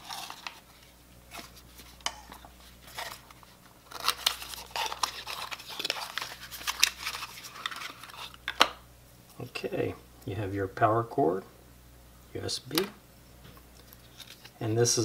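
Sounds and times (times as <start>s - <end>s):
cardboard rustling and crinkling: 0.0s - 8.4s.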